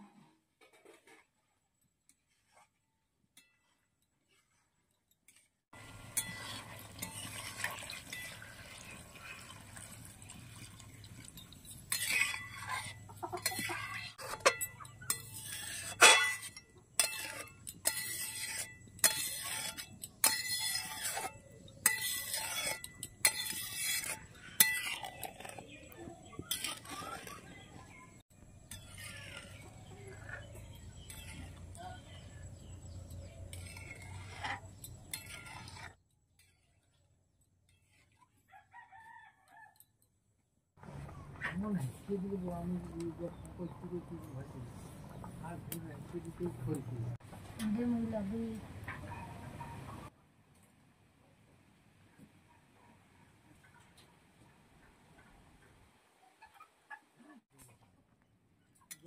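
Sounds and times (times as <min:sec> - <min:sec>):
metal spatula scraping a pot: 0:00.1 - 0:10.2, 0:10.8 - 0:38.4.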